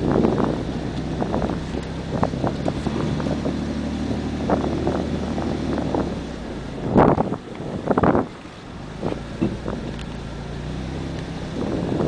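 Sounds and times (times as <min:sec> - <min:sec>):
truck engine running: 0:00.0 - 0:12.0
wind noise on microphone: 0:00.0 - 0:12.0.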